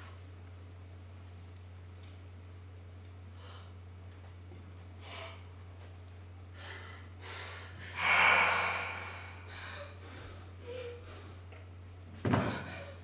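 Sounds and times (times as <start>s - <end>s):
person gasping: 6.6s - 11.2s
person breathing: 6.6s - 11.4s.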